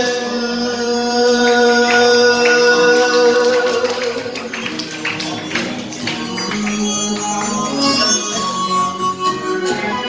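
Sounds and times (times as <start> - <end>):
man singing into microphone: 0.0 - 4.6, 6.3 - 9.8
karaoke backing track: 0.0 - 10.0.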